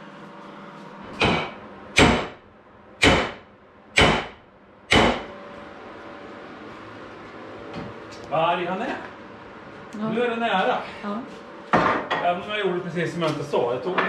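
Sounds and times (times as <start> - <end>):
hammer striking cast iron: 1.2 - 2.4, 3.0 - 5.4.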